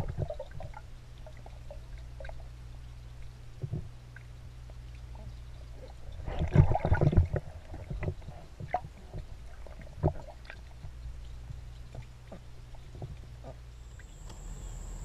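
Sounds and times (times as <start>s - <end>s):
steady low hum: 0.0s - 15.0s
underwater pool splashing: 6.2s - 10.7s.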